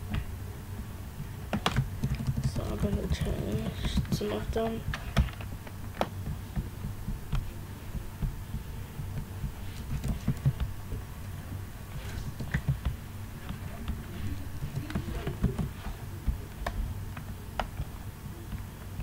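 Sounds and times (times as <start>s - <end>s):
steady low hum: 0.0s - 19.0s
keyboard keystrokes: 1.5s - 6.6s.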